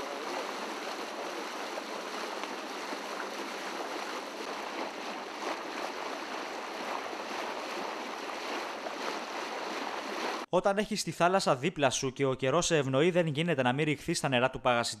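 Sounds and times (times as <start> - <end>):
water rushing along a hull: 0.0 - 10.5.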